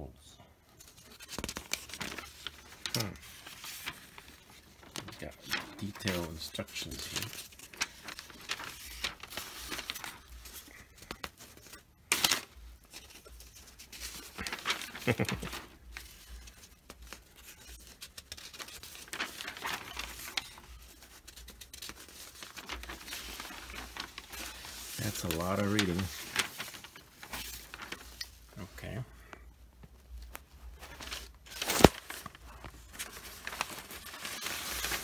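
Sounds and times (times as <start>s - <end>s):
newspaper rustling and crinkling: 0.7s - 35.0s.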